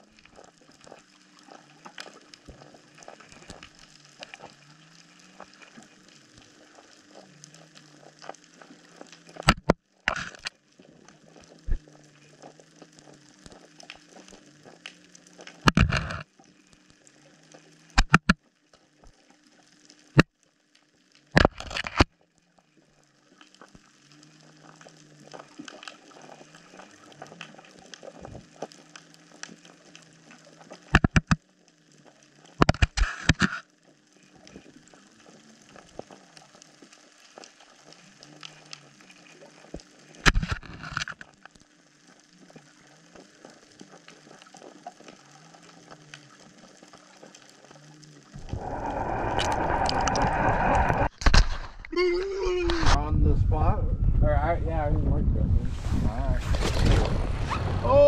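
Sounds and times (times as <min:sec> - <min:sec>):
fine underwater crackling: 0:00.0 - 0:58.0
low wavering hum: 0:48.2 - 0:58.0.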